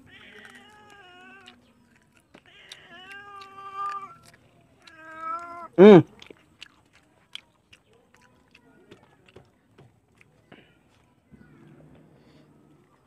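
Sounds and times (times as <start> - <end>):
cat meowing: 0.0 - 1.6, 2.4 - 5.8.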